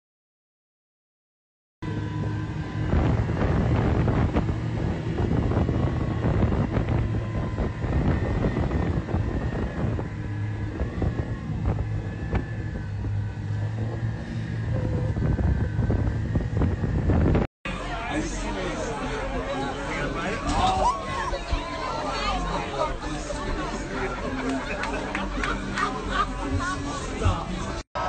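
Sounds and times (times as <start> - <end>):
outboard motors running hard: 1.8 - 28.0
churning water: 1.9 - 17.0, 17.7 - 27.8
wind buffeting microphone: 1.9 - 17.5.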